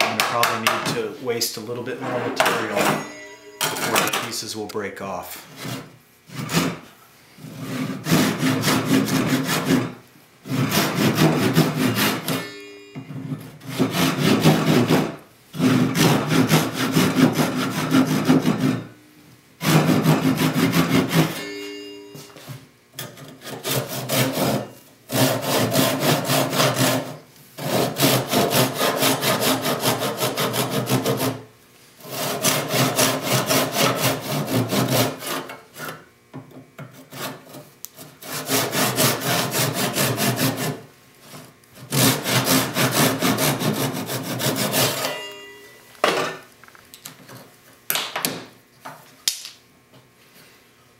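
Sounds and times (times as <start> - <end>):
hand saw cutting hardwood: 5.5 - 12.5, 13.3 - 18.9, 19.6 - 21.5, 23.0 - 31.4, 32.0 - 36.0, 36.8 - 45.3.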